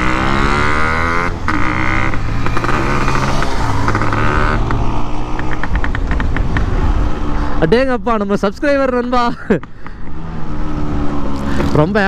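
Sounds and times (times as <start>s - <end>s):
motorcycle engine running: 0.0s - 7.5s.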